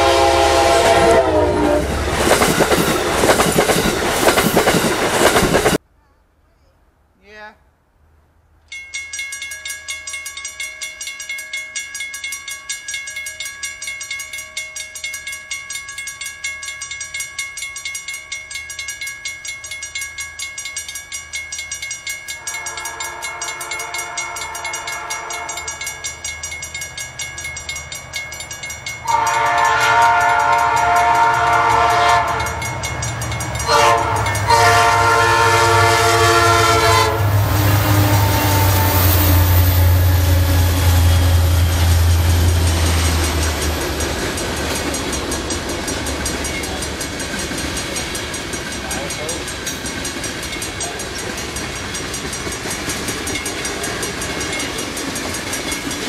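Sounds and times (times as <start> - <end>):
train air horn blasts: 0.0 - 2.0, 22.4 - 25.8, 29.0 - 32.6, 33.6 - 42.6
railroad crossing bells ringing: 0.0 - 5.8, 8.7 - 56.0.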